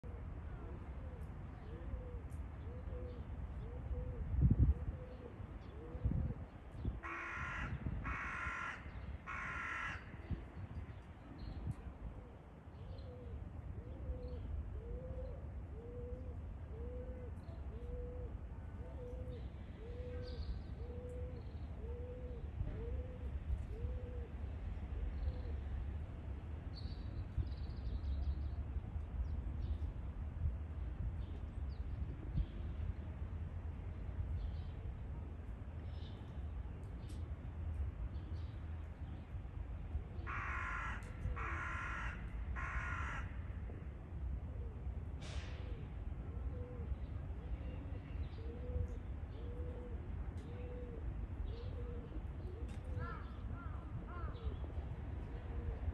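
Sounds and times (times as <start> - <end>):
crow cawing: 7.0 - 10.3, 40.2 - 43.5, 53.0 - 54.4.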